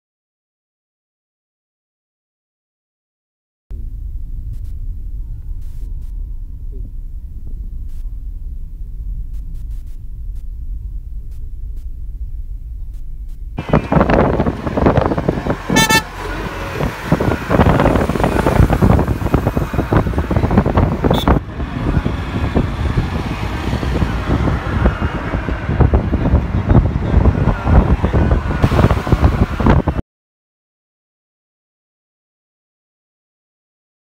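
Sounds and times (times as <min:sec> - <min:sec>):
road and wind noise: 0:03.7 - 0:30.0
vehicle horn toot: 0:15.6 - 0:16.6, 0:21.0 - 0:21.4.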